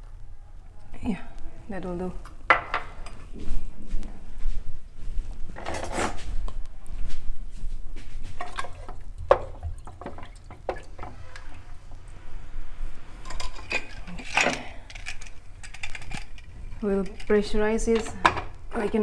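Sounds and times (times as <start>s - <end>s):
low steady hum: 0.0s - 19.0s
water sloshing: 8.4s - 12.0s.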